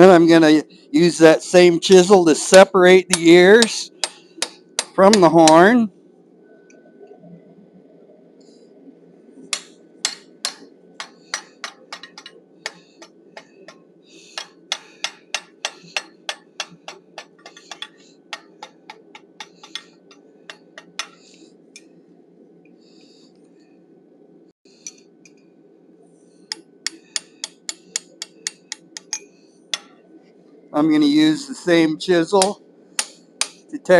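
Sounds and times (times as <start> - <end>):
steady low hum: 0.0 - 33.9
hammer striking chisel on metal: 2.5 - 5.7, 9.5 - 13.8, 14.4 - 21.2, 26.5 - 30.0, 32.4 - 33.7.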